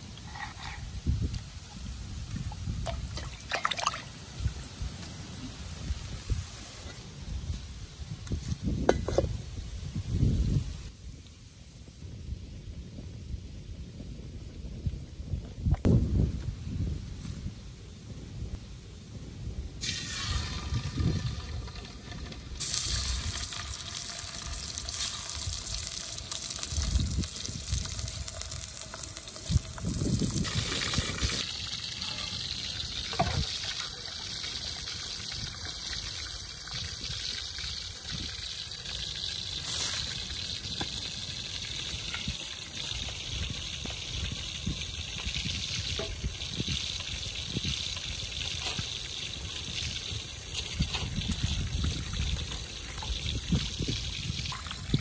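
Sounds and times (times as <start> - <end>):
water splashing and trickling: 0.2 - 6.4, 19.8 - 55.0
pork sizzling in hot oil: 19.8 - 55.0.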